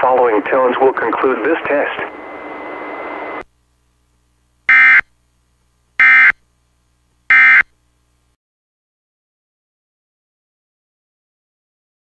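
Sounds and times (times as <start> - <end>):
digital data tone bursts: 4.7 - 5.0, 6.0 - 6.4, 7.3 - 7.7.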